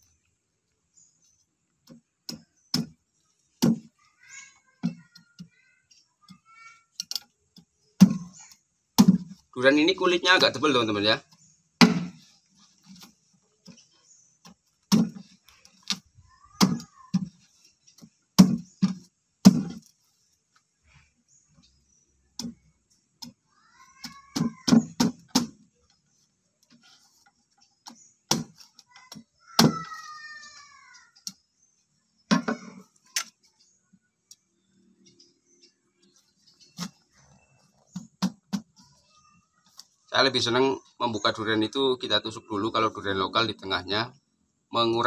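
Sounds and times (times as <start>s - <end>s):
machete chopping husk on wood: 11.8s - 12.2s, 14.9s - 15.2s, 18.4s - 19.9s, 27.9s - 28.7s.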